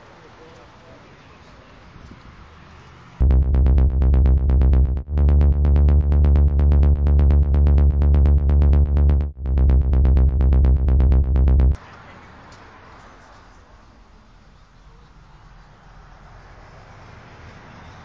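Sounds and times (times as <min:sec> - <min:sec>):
deep bass: 0:03.2 - 0:11.8
fast electronic ticks: 0:03.2 - 0:11.8.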